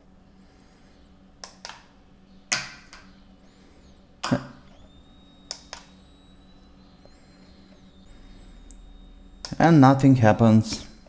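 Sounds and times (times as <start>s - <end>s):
sharp switch clicks: 1.4s - 1.9s, 5.5s - 5.9s
steady high-pitched tone: 3.0s - 11.0s.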